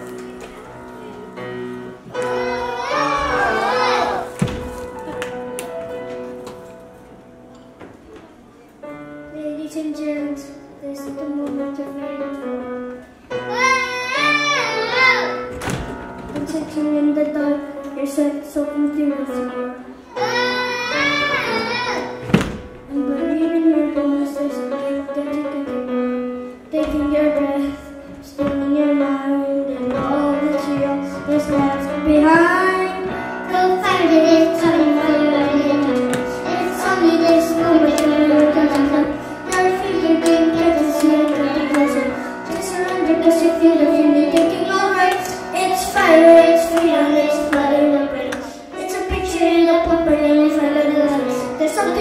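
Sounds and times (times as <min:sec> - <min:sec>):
grand piano chords: 0:00.0 - 0:52.0
child singing into a microphone: 0:09.3 - 0:12.5, 0:16.3 - 0:22.3, 0:22.9 - 0:52.0.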